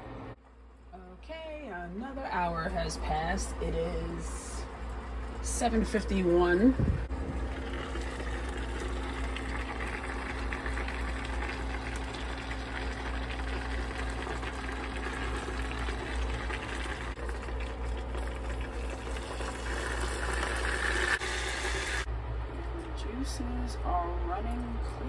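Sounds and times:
meat juices bubbling and crackling: 7.3s - 21.2s.

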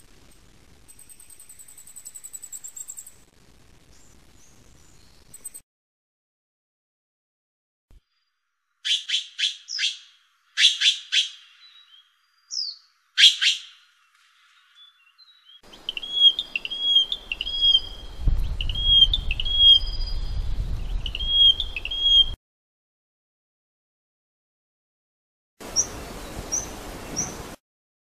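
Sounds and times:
bush-warbler singing short notes: 8.8s - 13.8s, 14.6s - 22.4s.

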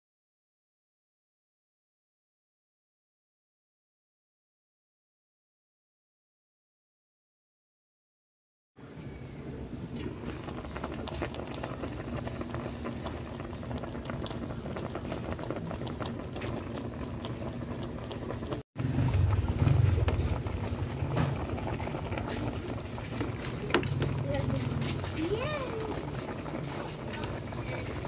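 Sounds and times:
broth bubbling in a pot: 9.0s - 28.0s
low rumble: 9.4s - 26.6s.

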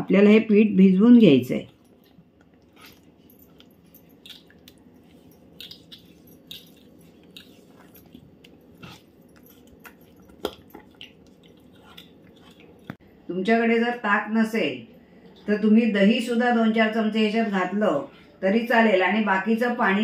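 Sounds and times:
spoon stirring thick batter: 1.7s - 13.0s
wet squelching: 4.1s - 13.0s.

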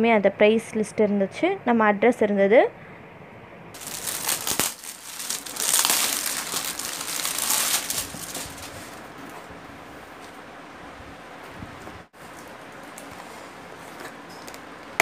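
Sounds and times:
plastic cover crinkling: 3.8s - 9.1s.

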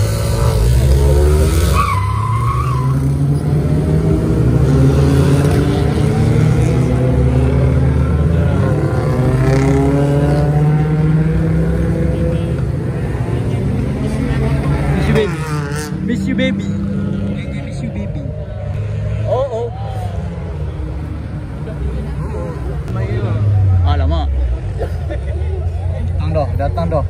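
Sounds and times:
car engines revving and accelerating: 0.0s - 27.0s
tyre squeal: 0.4s - 3.5s.

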